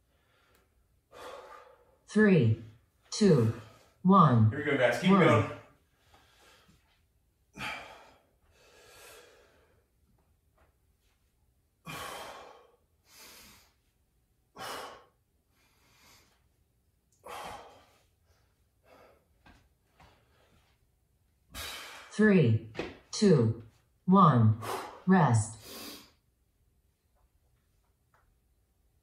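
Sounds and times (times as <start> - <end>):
man breathing hard: 0.0 - 2.0, 5.9 - 9.9, 11.8 - 13.9, 14.5 - 16.5, 17.2 - 18.2, 18.8 - 20.8, 21.5 - 22.1.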